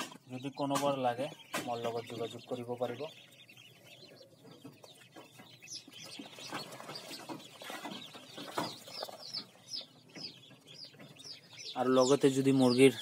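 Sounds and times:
ducklings peeping: 0:00.0 - 0:13.0.

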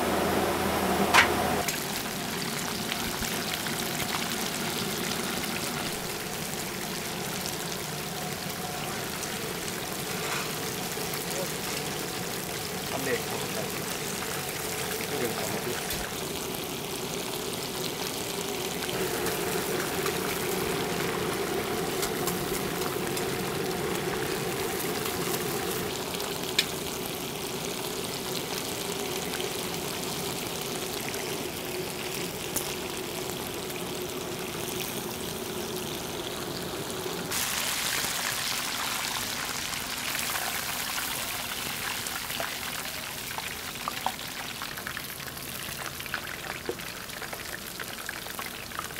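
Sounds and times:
oil sizzling and crackling: 0:00.0 - 0:48.9.

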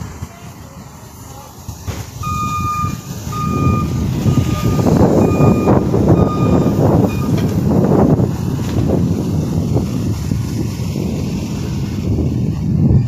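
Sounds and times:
low rumbling noise: 0:00.0 - 0:13.0
reversing alarm beeping: 0:02.2 - 0:07.5.

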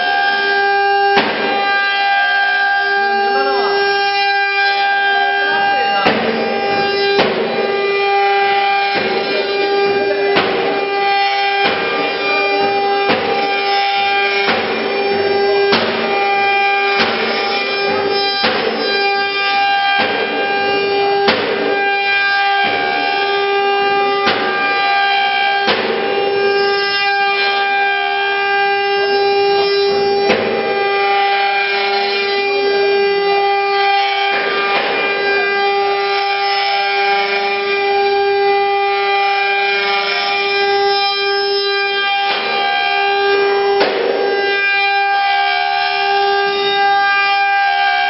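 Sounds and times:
router spindles whining: 0:00.0 - 0:48.0
cutters rasping into wood: 0:05.6 - 0:19.4.

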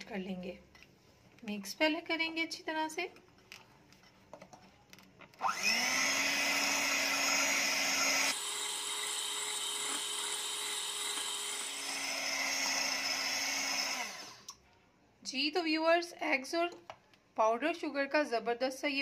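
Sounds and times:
electric hand mixer whirring: 0:05.4 - 0:14.5.

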